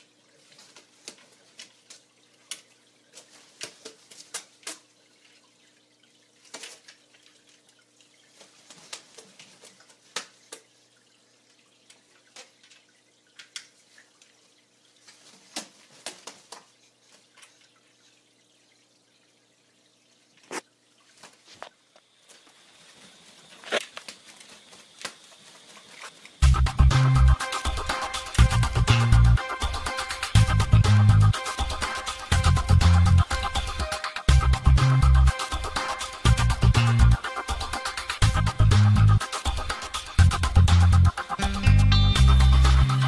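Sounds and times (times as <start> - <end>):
water dripping from bird: 0.0 - 22.0
bird flapping feathers: 8.4 - 10.5, 15.0 - 17.2, 22.3 - 26.4.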